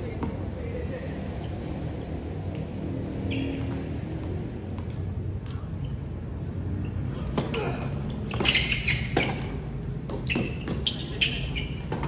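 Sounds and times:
tennis ball bouncing on hard court: 8.2 - 11.0.

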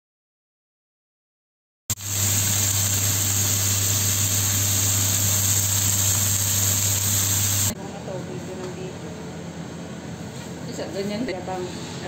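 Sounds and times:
meat sizzling on grill pan: 1.9 - 7.8.

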